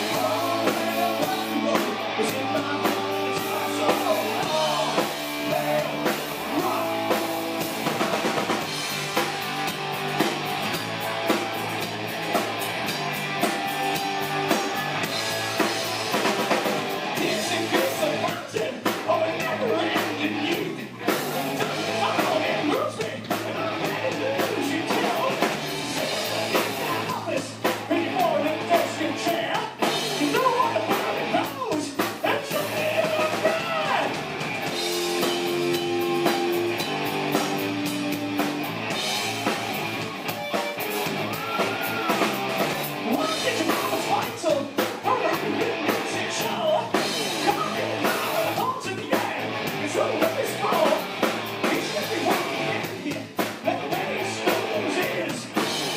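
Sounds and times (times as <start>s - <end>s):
lead singer vocals: 0.0s - 8.5s, 17.0s - 34.2s, 43.0s - 51.0s, 51.6s - 55.7s
bass guitar: 0.0s - 55.9s
drum kit: 0.0s - 55.9s
electric guitars: 0.0s - 55.9s.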